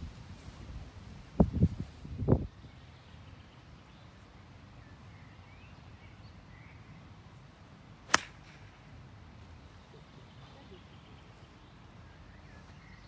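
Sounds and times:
golf club striking ball: 8.1 - 8.7.

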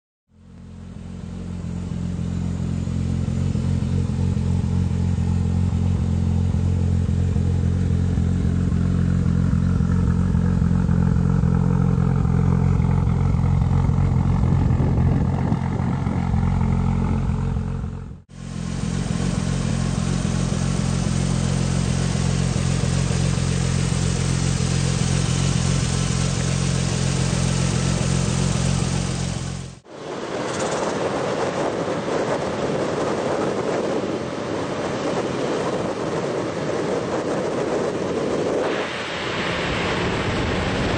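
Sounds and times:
car engine running: 0.4 - 29.9.

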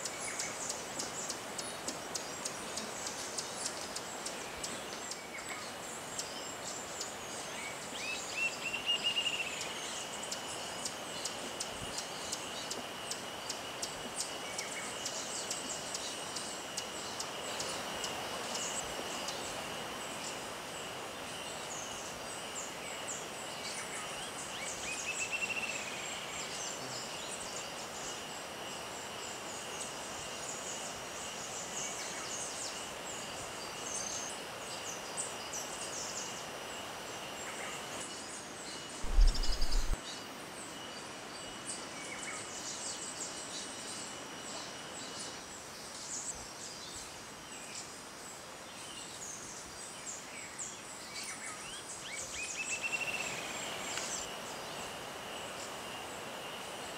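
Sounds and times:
insects buzzing and chirping: 0.0 - 56.9
low thump: 39.0 - 40.0.

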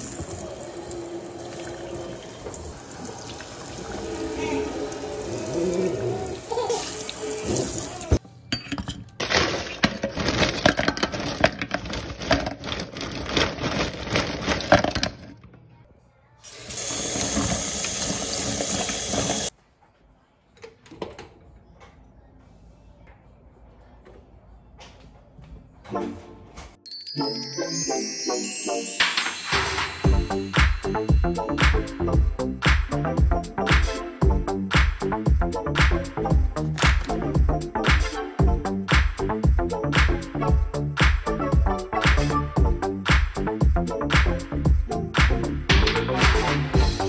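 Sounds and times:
faucet sprayer running into steel sink: 16.5 - 19.5.

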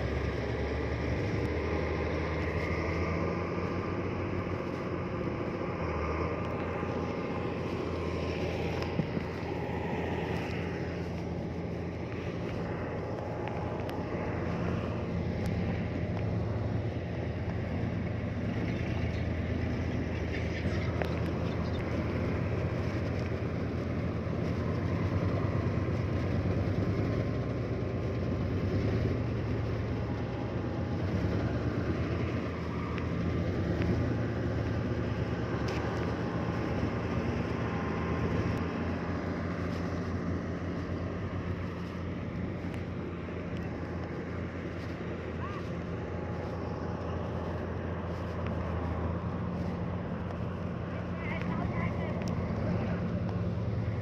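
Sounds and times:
heavy diesel engine running: 0.0 - 54.0.

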